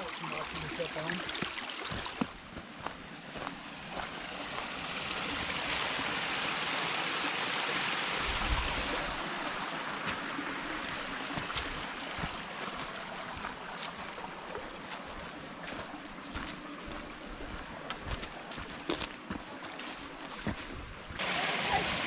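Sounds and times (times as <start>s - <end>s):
creek trickling and babbling: 0.0s - 22.0s
footsteps on dry leaves: 1.9s - 6.3s, 11.5s - 21.1s.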